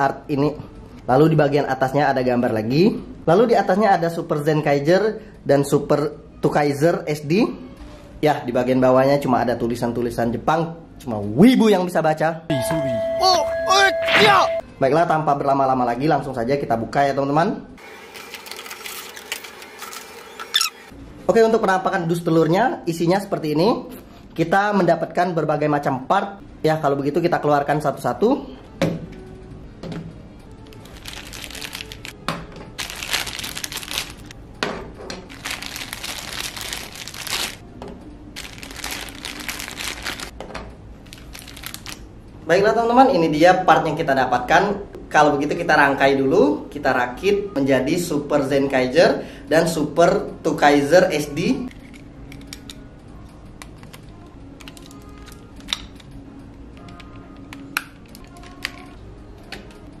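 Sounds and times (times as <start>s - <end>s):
faint background music: 0.0s - 17.8s, 20.9s - 60.0s
plastic bags crinkling: 18.2s - 20.7s, 30.6s - 32.2s, 32.8s - 34.4s, 35.3s - 37.6s, 38.4s - 40.4s, 41.0s - 42.1s
plastic toy parts snapping together: 54.6s - 56.2s.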